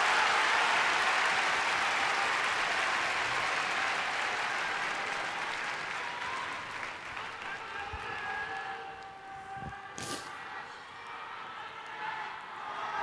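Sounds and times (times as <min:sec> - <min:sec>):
large audience applauding: 0:00.0 - 0:10.3.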